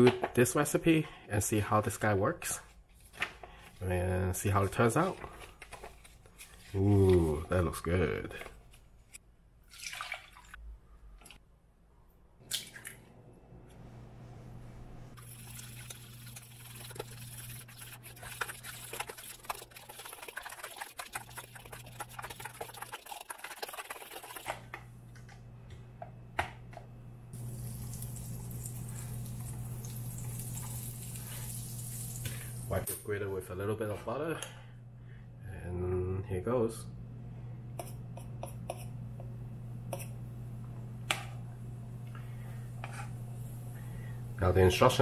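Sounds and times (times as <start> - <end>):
batter stirring in bowl: 15.2 - 24.7
steady low hum: 24.6 - 45.0.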